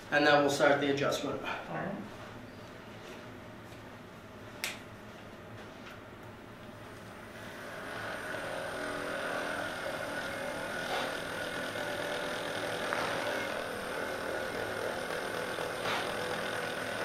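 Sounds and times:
massage gun motor hum: 6.5 - 17.0.

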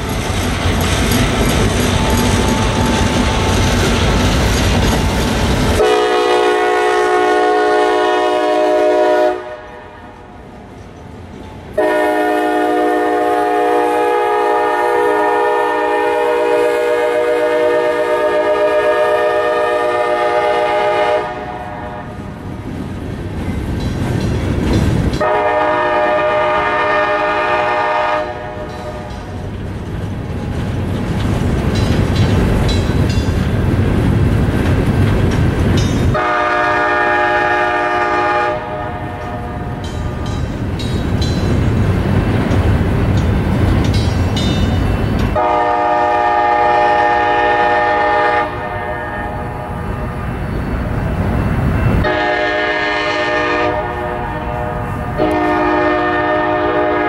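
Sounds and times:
train rumbling and clattering on rails: 0.0 - 57.0
locomotive horn blasts: 5.7 - 10.2, 11.8 - 22.2, 25.2 - 29.1, 36.1 - 39.8, 45.4 - 49.8, 51.9 - 57.0.

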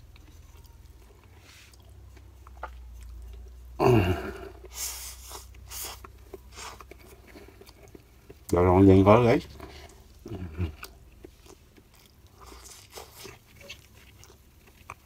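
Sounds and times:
wet smacking chewing: 0.0 - 3.8, 4.4 - 8.6, 9.5 - 15.0
steady low hum: 0.0 - 15.0
person humming: 3.8 - 4.6.

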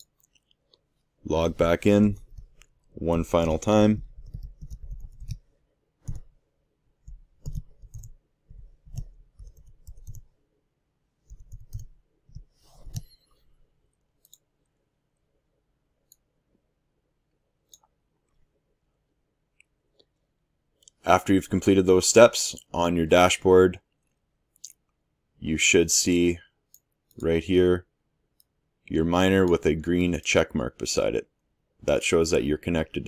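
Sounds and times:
keyboard typing: 3.4 - 6.3, 7.0 - 10.3, 11.2 - 13.2
mouse clicks: 11.2 - 13.2, 14.2 - 14.5.

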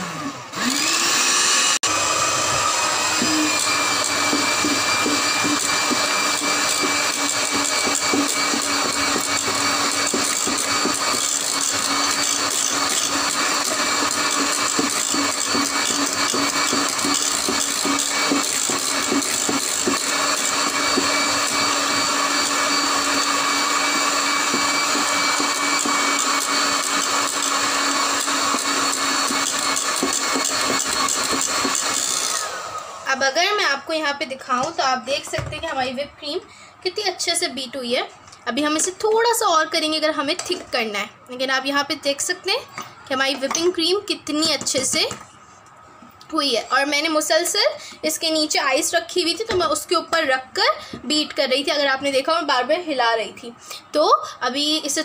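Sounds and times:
electric hand mixer whining: 0.0 - 35.5.

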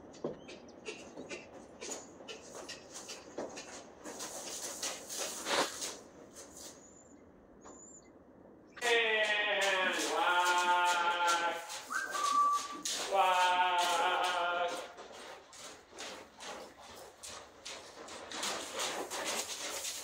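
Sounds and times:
hoofbeats in deep sand: 0.0 - 8.1, 8.7 - 20.0
horse neighing: 8.8 - 15.0
short high whistle: 11.9 - 12.8.

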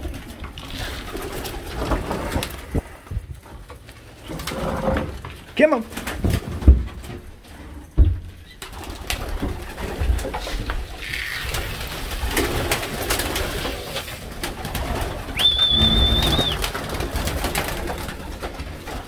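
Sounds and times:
pigeons cooing: 8.4 - 19.0
wing flaps: 8.5 - 19.0
short high whistle: 15.4 - 16.6.

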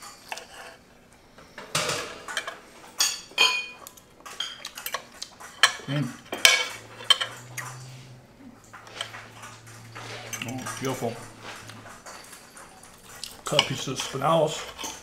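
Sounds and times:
knife and fork scraping plate: 0.2 - 0.8, 4.3 - 15.0.

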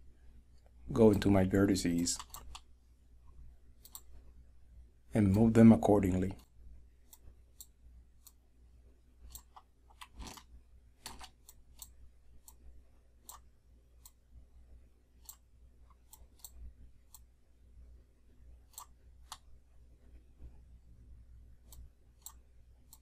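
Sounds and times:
computer mouse clicks: 2.0 - 2.7, 3.8 - 4.1, 7.1 - 8.4, 9.2 - 12.6, 13.2 - 14.2, 15.2 - 17.3, 18.6 - 19.5, 21.6 - 23.0.

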